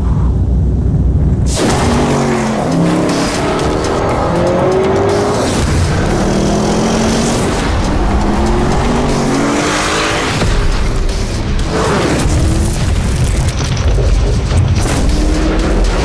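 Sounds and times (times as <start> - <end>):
tyre and road rushing noise: 0.0 - 16.0
engine revving hard: 1.5 - 10.8.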